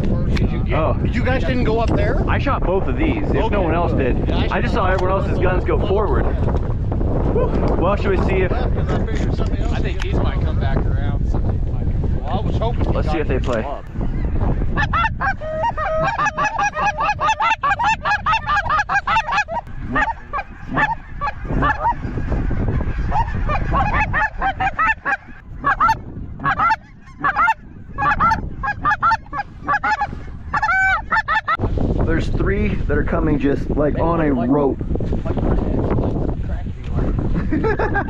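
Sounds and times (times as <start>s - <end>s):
wind noise on microphone: 0.0s - 38.0s
geese honking: 14.0s - 31.6s.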